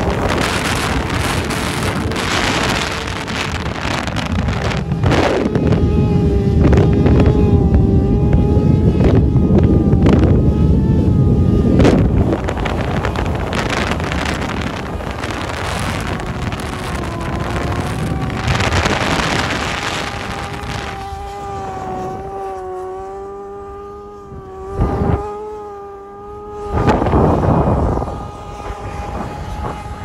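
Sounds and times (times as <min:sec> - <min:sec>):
road noise: 0:00.0 - 0:30.0
vehicle engine humming: 0:00.0 - 0:30.0
wind noise: 0:00.0 - 0:30.0.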